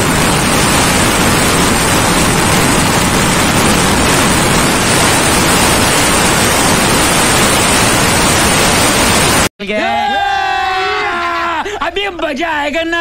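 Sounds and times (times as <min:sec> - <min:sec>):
loud wind rush on microphone: 0:00.0 - 0:09.5.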